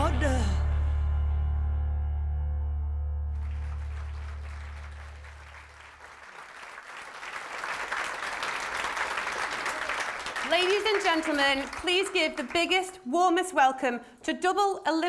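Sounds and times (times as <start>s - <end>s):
music with low bass tone: 0.0s - 5.1s
audience clapping: 3.3s - 13.0s.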